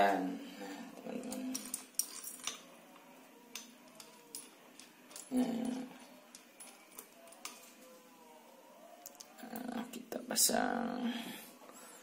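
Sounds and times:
small metal parts clicking: 0:01.2 - 0:07.8, 0:09.0 - 0:09.7.

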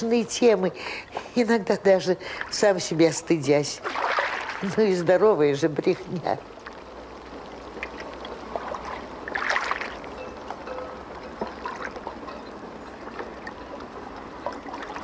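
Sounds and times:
water swish: 0:03.5 - 0:05.5, 0:06.5 - 0:15.0
river water lapping: 0:03.7 - 0:05.4, 0:06.0 - 0:15.0.

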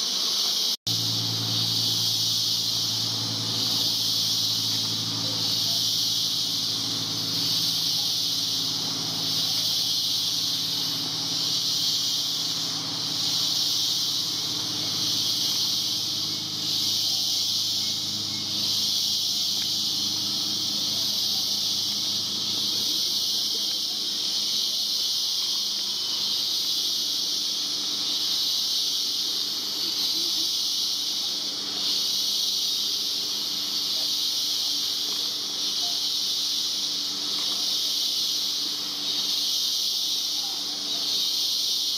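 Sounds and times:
insect chorus hiss: 0:00.0 - 0:41.9
low hum: 0:00.9 - 0:23.0.

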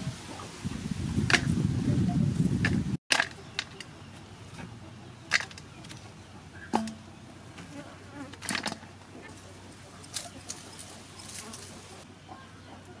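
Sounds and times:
insects buzzing: 0:06.9 - 0:12.1.

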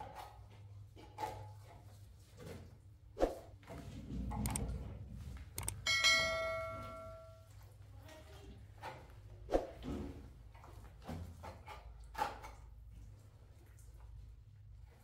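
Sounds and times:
metal object ringing bell-like: 0:05.8 - 0:07.5.

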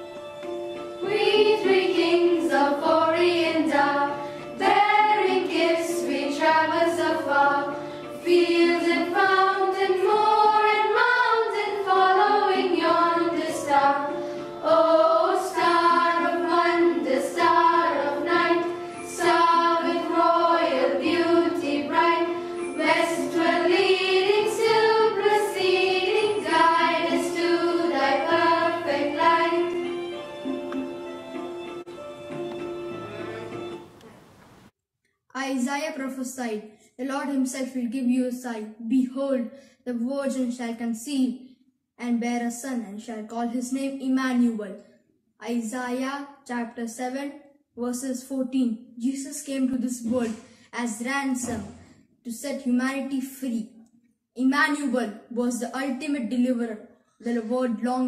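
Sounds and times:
soft instrumental backing: 0:00.0 - 0:34.7
girls choir singing: 0:01.0 - 0:30.9.

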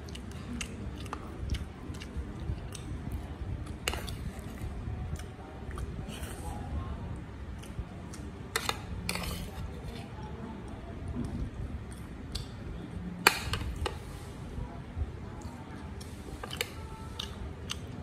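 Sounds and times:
spoon scraping ceramic plate: 0:08.6 - 0:09.6.

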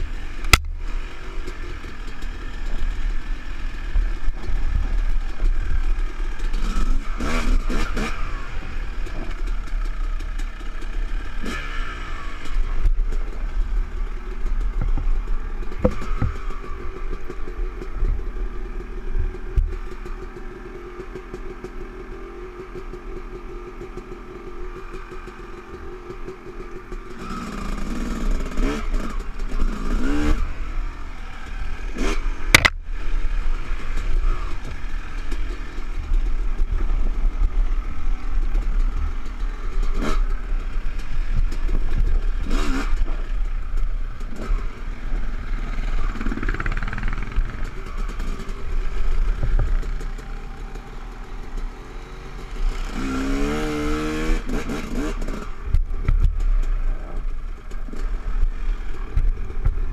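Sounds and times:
dirt bike engine revving: 0:00.0 - 0:21.3, 0:27.0 - 0:59.9
sharp clack: 0:32.0 - 0:32.8.

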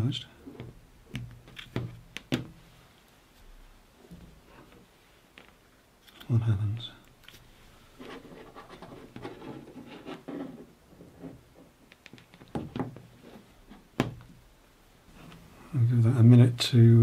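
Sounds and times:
plastic gadgets rubbing and clicking: 0:08.0 - 0:13.8.

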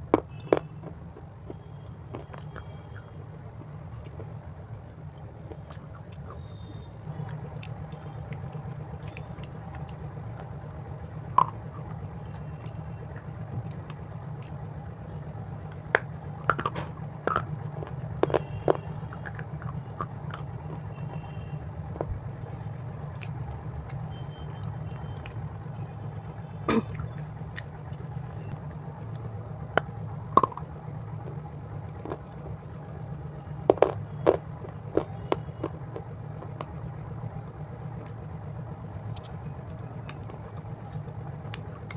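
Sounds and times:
crunching and chewing snack: 0:00.0 - 0:22.1, 0:23.1 - 0:25.8, 0:26.7 - 0:37.0, 0:39.1 - 0:41.9
steady low hum: 0:00.0 - 0:41.9.

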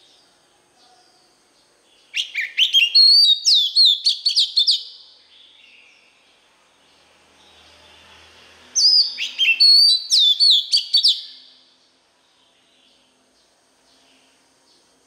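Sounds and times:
bird singing whistled notes: 0:01.9 - 0:06.3, 0:08.8 - 0:11.7.

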